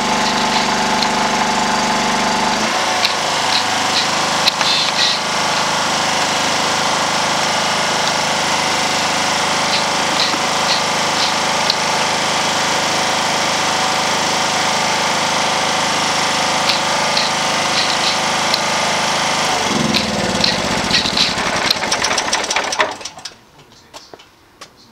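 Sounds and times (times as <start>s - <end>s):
generator engine running: 0.0s - 23.4s.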